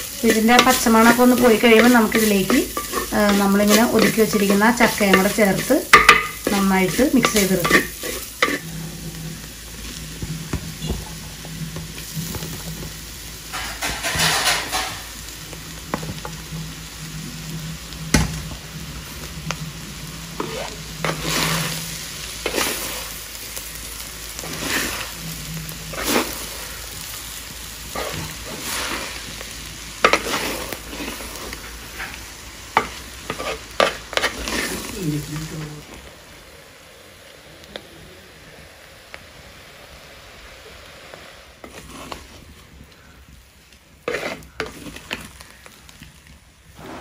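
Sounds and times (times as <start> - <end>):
spatula scraping a pan: 0.0 - 11.0, 13.4 - 15.2, 20.2 - 35.6, 41.6 - 43.1, 43.9 - 45.8
paste sizzling in oil: 0.0 - 47.0.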